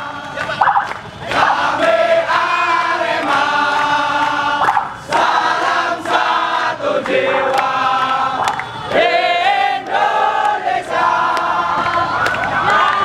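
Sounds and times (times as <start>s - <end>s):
crowd singing a chant: 0.0s - 13.0s.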